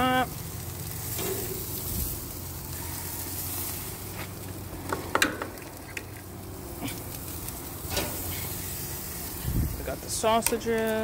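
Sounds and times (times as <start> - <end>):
food sizzling on a grill: 0.0 - 11.0
metal tongs clinking on grill: 1.0 - 1.9, 7.4 - 8.6, 10.2 - 11.0.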